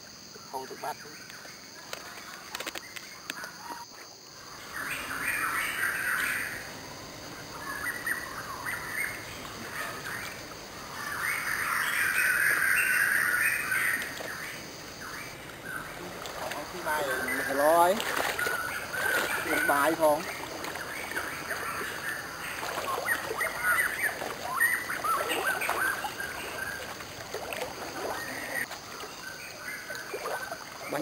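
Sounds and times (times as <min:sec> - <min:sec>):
birds chirping: 0:00.3 - 0:31.0.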